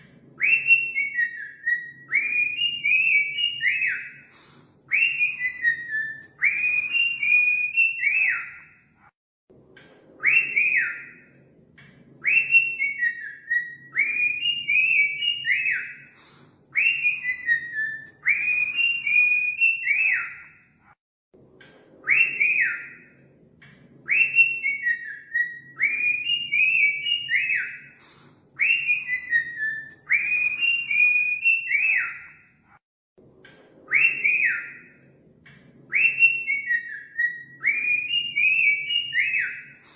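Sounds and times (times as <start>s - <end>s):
cockatiel whistling: 0.4s - 8.8s, 12.2s - 20.6s, 24.1s - 32.4s, 33.9s - 34.9s, 35.9s - 39.9s.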